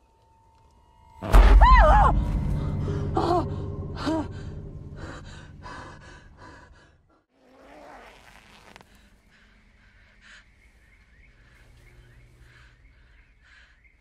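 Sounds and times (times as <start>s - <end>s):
low held drone: 0.0s - 7.1s
faint breath: 8.8s - 14.0s.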